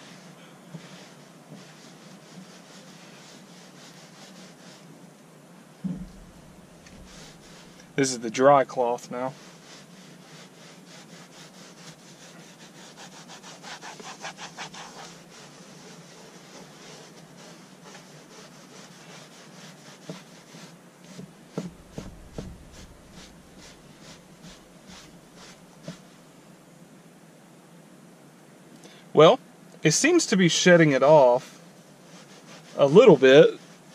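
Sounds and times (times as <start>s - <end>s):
dull knocks: 5.8s - 7.8s, 21.5s - 23.8s
cloth rubbing on carpet: 5.8s - 8.6s, 9.3s - 26.2s.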